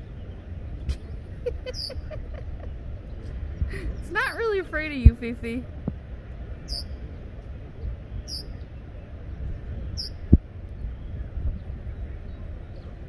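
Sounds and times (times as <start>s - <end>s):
wind rumbling on microphone: 0.0s - 13.0s
bird chirping: 1.7s - 2.2s, 6.6s - 7.2s, 8.2s - 9.0s, 9.8s - 13.0s.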